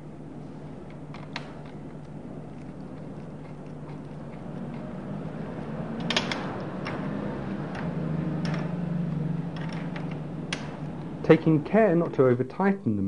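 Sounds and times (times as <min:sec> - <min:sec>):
steady low hum: 0:00.0 - 0:13.0
sharp metallic clicks and clinks: 0:07.7 - 0:08.8.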